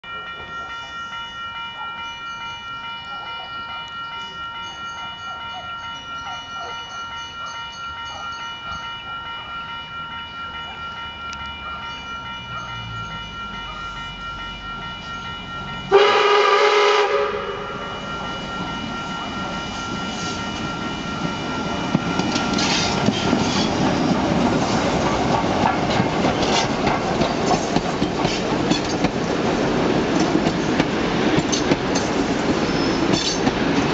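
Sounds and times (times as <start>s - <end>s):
level crossing warning bell: 0.0s - 33.9s
steam locomotive whistle: 15.9s - 18.3s
train wheels clicking on rails: 17.2s - 33.9s.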